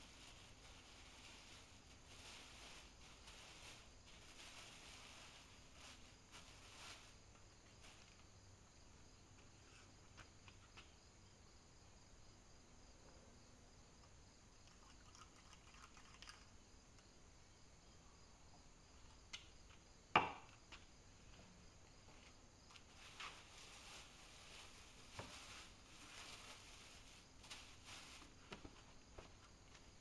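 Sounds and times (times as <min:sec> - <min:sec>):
plastic sheeting rustling: 0:00.0 - 0:08.3, 0:22.8 - 0:29.4.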